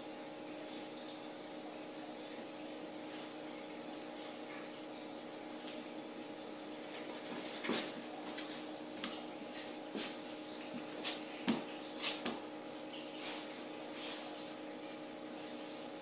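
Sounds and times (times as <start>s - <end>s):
room hum: 0.0s - 16.0s
soft knocks and scuffs on tiles: 7.2s - 10.2s.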